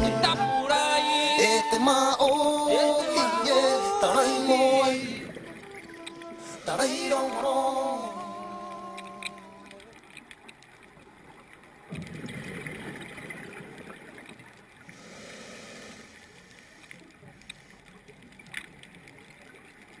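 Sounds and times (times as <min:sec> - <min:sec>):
faint clicks: 0:05.3 - 0:15.0, 0:15.8 - 0:20.0
exhaled bubbles gurgling: 0:10.7 - 0:15.0.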